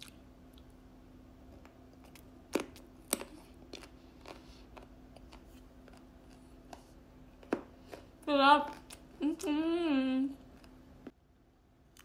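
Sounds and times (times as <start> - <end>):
crunchy chewing: 1.5 - 6.6.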